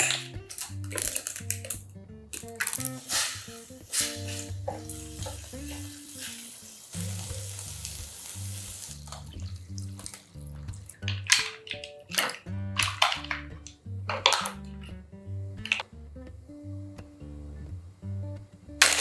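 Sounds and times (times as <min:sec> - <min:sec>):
shells clacking into a pot: 0:00.0 - 0:03.4, 0:09.1 - 0:14.9, 0:15.6 - 0:15.8, 0:18.8 - 0:19.0
background music: 0:00.0 - 0:19.0
food sizzling in a pot: 0:02.4 - 0:10.4, 0:18.8 - 0:19.0.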